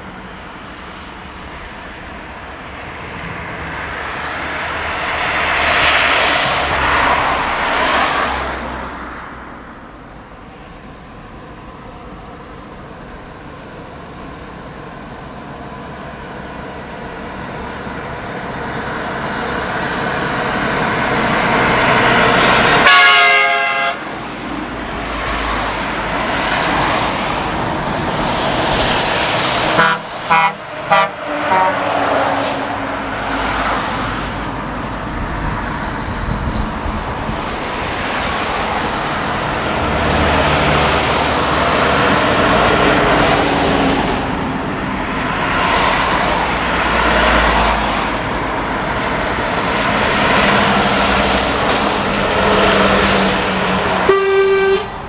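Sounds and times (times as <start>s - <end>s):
highway traffic passing: 0.0s - 55.0s
short horn toots: 22.8s - 24.0s, 29.8s - 32.1s, 54.0s - 55.0s
vehicle horn blast: 22.8s - 24.1s, 29.7s - 32.2s, 54.0s - 55.0s.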